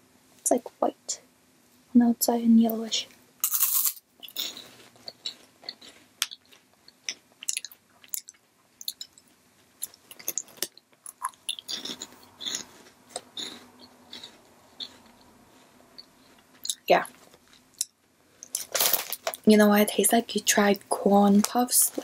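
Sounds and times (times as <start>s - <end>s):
crunching and chewing: 3.4s - 19.4s.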